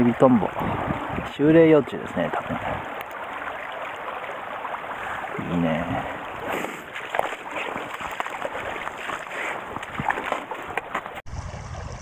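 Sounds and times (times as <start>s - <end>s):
stream water running: 0.0s - 12.0s
net splashing in water: 6.8s - 10.7s.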